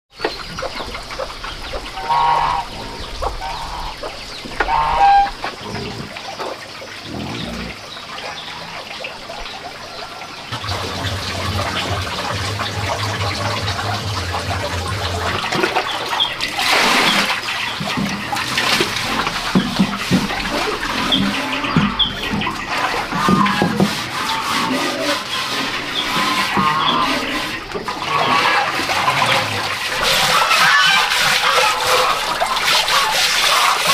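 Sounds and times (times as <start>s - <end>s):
bird calls: 0.1s - 29.6s
water splashing: 0.1s - 33.9s.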